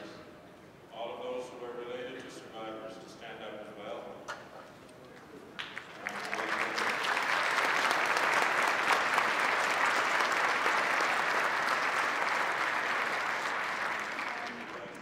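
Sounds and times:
large audience applauding: 5.6 - 15.0.

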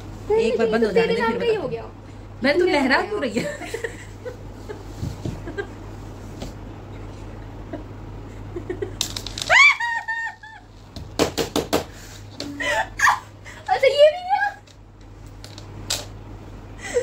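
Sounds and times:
high-pitched squealing laugh: 9.4 - 10.7, 12.5 - 13.4.

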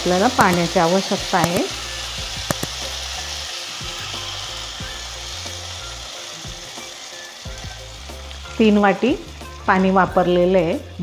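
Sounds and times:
water pouring and splashing: 0.0 - 10.2
food sizzling in hot pan: 0.0 - 11.0.

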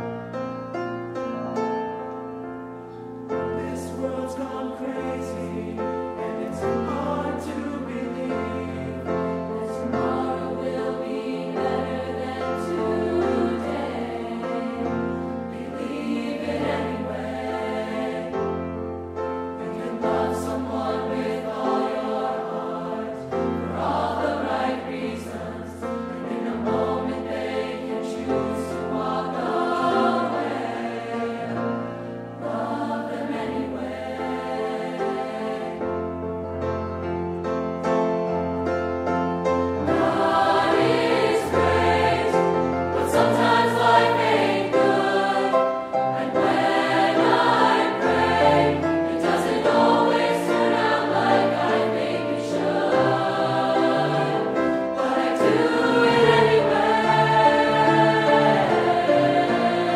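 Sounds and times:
choir singing held chords: 2.8 - 36.4, 39.8 - 59.9.

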